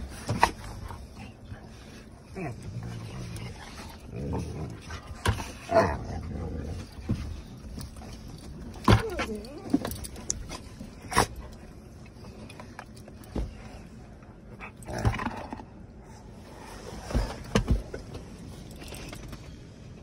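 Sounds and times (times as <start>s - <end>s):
dogs thumping against car seats: 0.0s - 1.6s, 6.7s - 11.8s, 16.9s - 19.5s.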